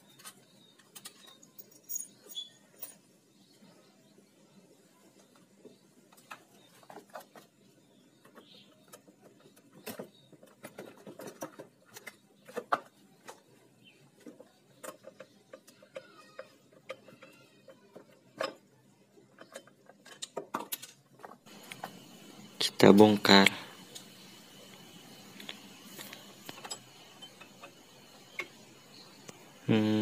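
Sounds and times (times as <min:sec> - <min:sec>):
metal clicks and knocks: 0:19.3 - 0:21.9.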